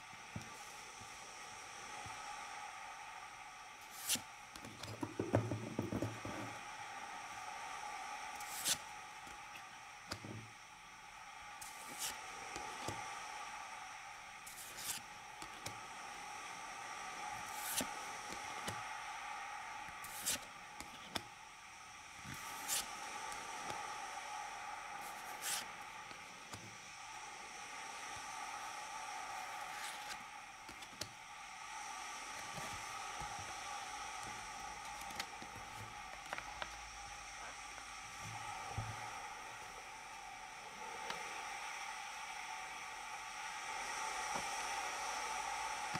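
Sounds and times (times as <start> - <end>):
steady hiss: 0.0 - 45.9
trading cards sliding swish: 3.9 - 4.9, 8.4 - 9.4, 11.6 - 13.0, 14.5 - 15.8, 17.4 - 18.8, 20.0 - 21.3, 22.2 - 23.8, 25.0 - 26.6, 29.5 - 31.1.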